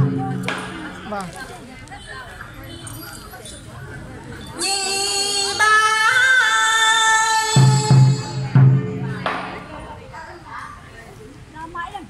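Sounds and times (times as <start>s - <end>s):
deep drum strikes: 0.0s - 1.1s, 7.5s - 9.9s.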